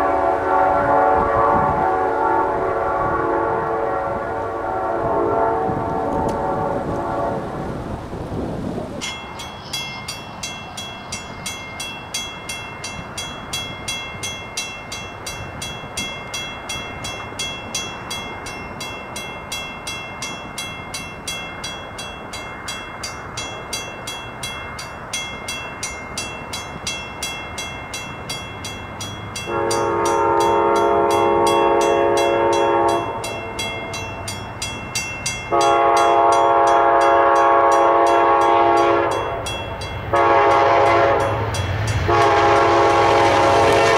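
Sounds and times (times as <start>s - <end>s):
train horn blasts: 0.0s - 7.8s, 29.4s - 34.0s, 35.5s - 39.5s, 40.1s - 43.9s
crossing bell ringing: 9.0s - 43.9s.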